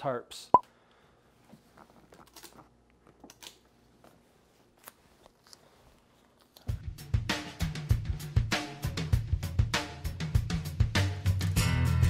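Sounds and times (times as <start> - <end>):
fabric and tape rustling: 1.3 - 6.8
music with drum beat: 7.0 - 12.0.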